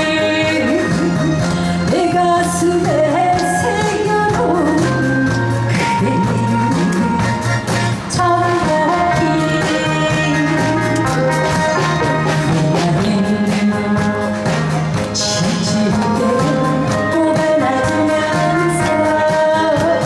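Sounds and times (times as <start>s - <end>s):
keyboard: 0.0s - 20.0s
woman singing into a microphone: 0.0s - 20.0s
drum beat: 11.0s - 16.7s.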